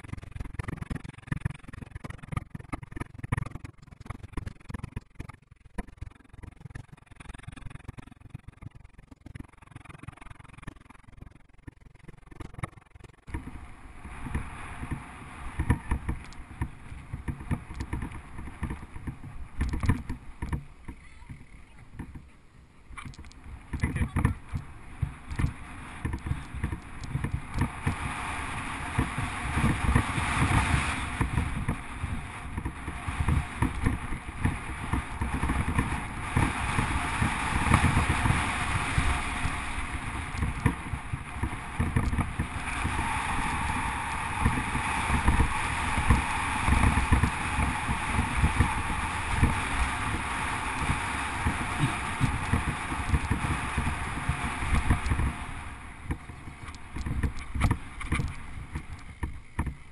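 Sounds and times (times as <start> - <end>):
knocks and rattles from bumps: 0.0 - 28.1, 56.0 - 59.9
bike tyres rolling over gravel: 0.0 - 59.9
wind rush: 13.3 - 22.2, 22.9 - 59.9.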